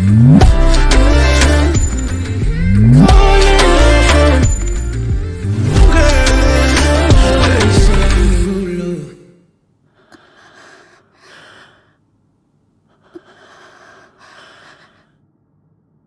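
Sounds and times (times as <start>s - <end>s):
backing music: 0.0s - 8.7s
person breathing: 9.9s - 12.1s, 12.8s - 15.3s.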